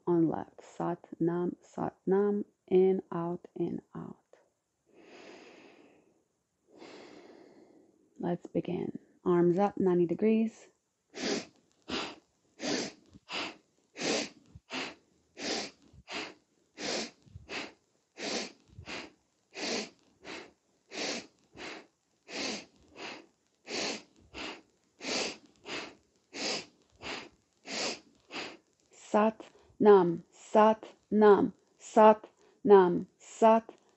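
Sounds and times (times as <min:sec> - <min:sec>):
woman breathing forcefully: 0:04.9 - 0:08.0, 0:11.2 - 0:28.6.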